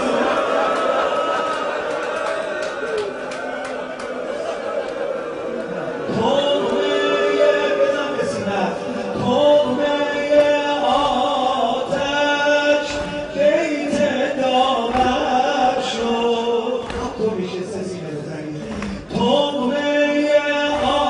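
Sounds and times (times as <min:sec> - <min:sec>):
man chanting a mournful elegy: 0:06.1 - 0:21.0.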